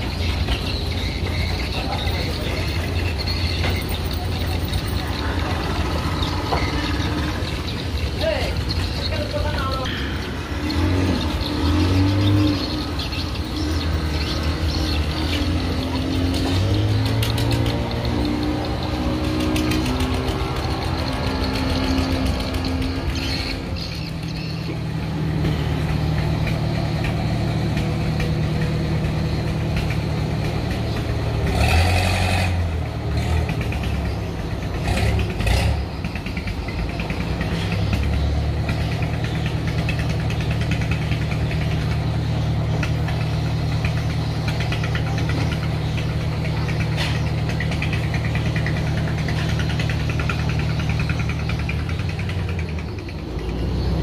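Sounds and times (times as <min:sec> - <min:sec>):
boat engine idling: 0:32.9 - 0:54.0.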